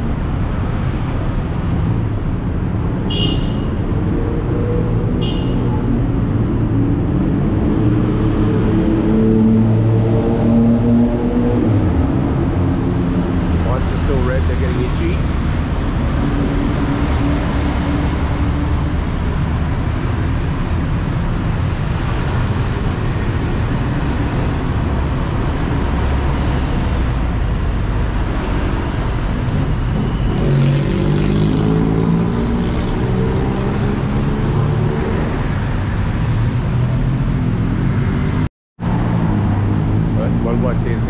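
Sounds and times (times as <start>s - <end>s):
road traffic noise: 0.0s - 41.0s
engine revving: 28.2s - 35.7s.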